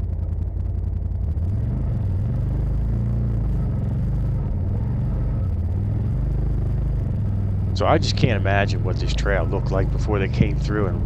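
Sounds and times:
utility vehicle engine revving: 0:00.0 - 0:11.0.

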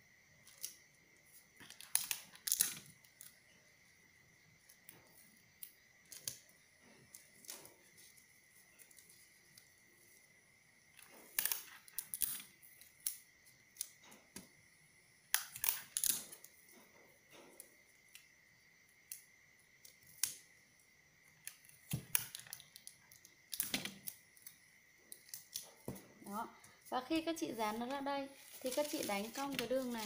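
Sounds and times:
faint high whine: 0:00.0 - 0:30.0
paper rustling and crackling: 0:28.4 - 0:30.0.

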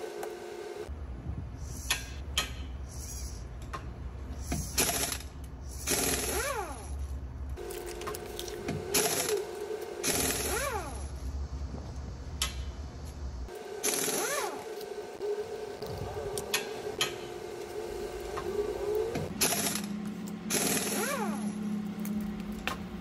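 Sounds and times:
steady low hum: 0:00.0 - 0:23.0
small electric motor whirring: 0:07.8 - 0:11.2, 0:13.5 - 0:22.2.

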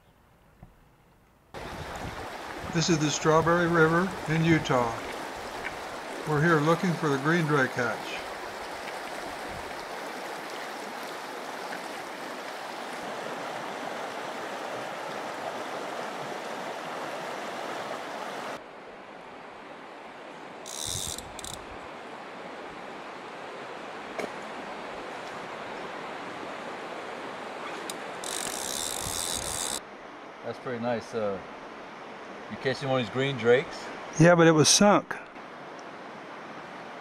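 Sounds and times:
river flowing over rocks: 0:01.6 - 0:18.6.

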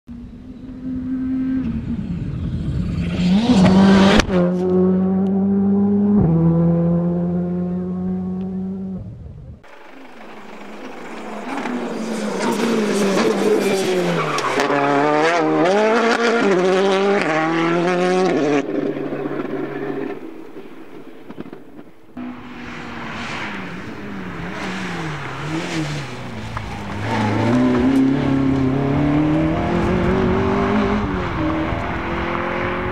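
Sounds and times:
rally car engines revving: 0:00.2 - 0:09.0, 0:09.6 - 0:32.9
car passing with sharp crack: 0:09.7 - 0:28.7.

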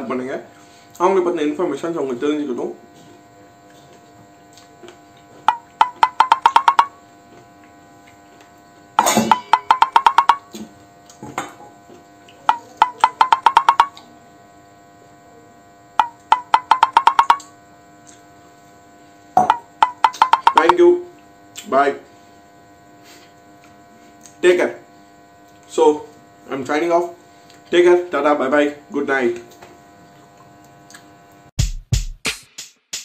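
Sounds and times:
wood-block clicks climbing in pitch: 0:05.5 - 0:06.9, 0:09.3 - 0:10.5, 0:12.5 - 0:14.0, 0:16.0 - 0:17.5, 0:19.4 - 0:20.8.

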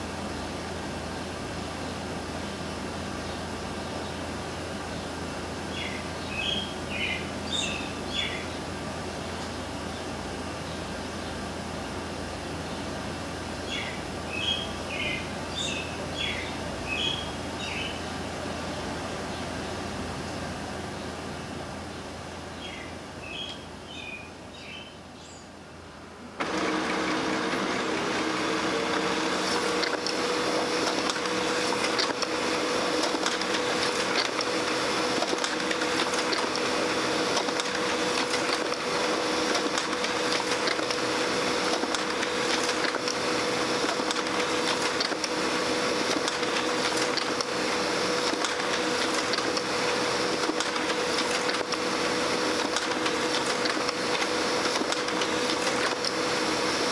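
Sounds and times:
laser printer printing: 0:26.4 - 0:56.9.

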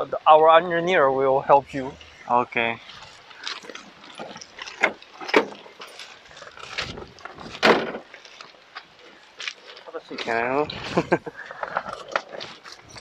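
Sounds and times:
knocks and clunks on excavator: 0:06.8 - 0:08.1.

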